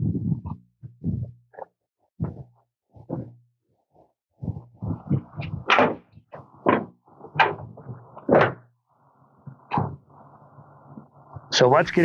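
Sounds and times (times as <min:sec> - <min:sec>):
metal clunks and scrapes: 0:05.0 - 0:08.7.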